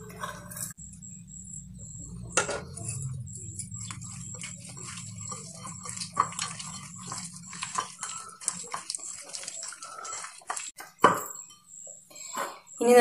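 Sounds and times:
hand squishing prawns in marinade: 3.6s - 10.8s.

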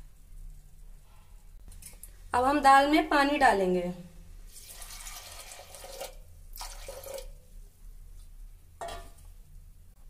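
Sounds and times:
water pouring into a pot: 4.5s - 7.6s.

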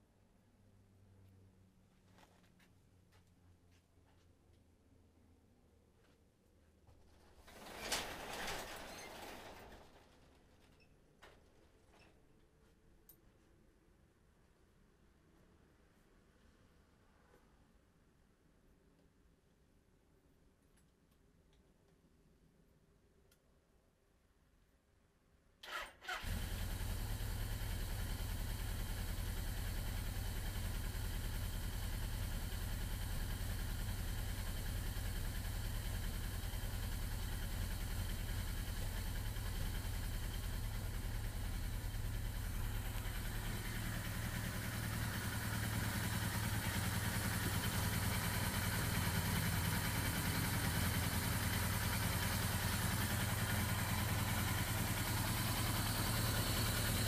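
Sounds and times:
motorcycle engine idling: 26.1s - 57.0s.

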